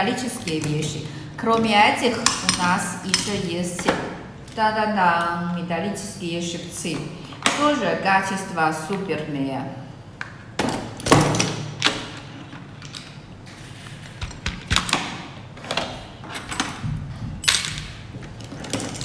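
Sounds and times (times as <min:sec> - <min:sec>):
metal clamps clinking and clattering: 0:00.4 - 0:03.4, 0:15.7 - 0:19.0.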